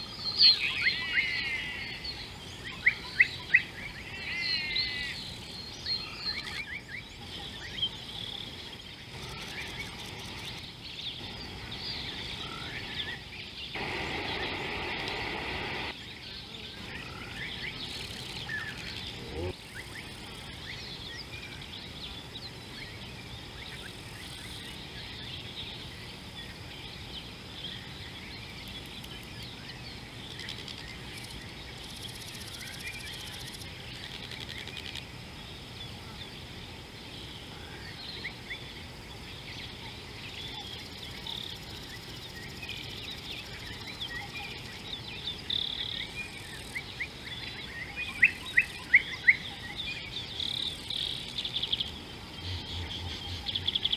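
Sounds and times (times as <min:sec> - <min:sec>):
background hiss: 0:00.0 - 0:53.9
small birds chirping: 0:00.0 - 0:53.9
loud burst of noise: 0:13.8 - 0:16.0.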